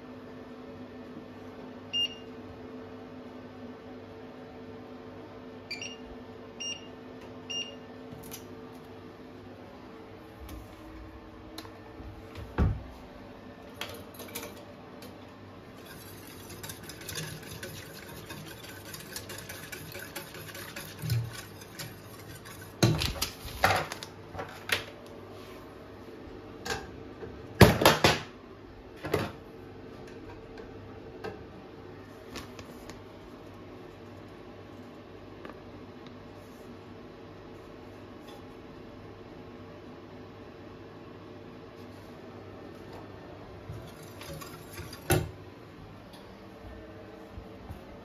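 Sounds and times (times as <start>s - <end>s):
whisk rattling against pot: 15.7s - 22.9s, 43.8s - 45.1s.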